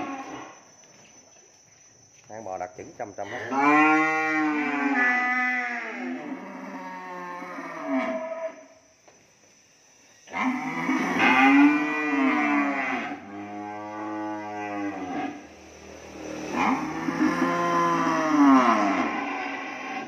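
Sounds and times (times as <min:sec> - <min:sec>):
cattle mooing: 0:03.4 - 0:08.6, 0:10.3 - 0:15.4, 0:16.5 - 0:20.0.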